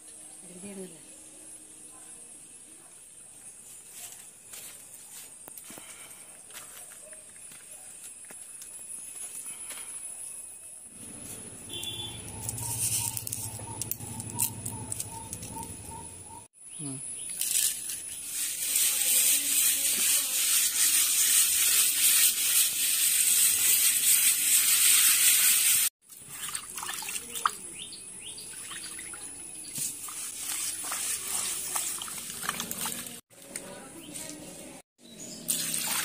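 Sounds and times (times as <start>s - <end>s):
hands rubbing fish with rock salt: 12.4s - 15.5s, 17.4s - 25.9s, 29.7s - 33.2s.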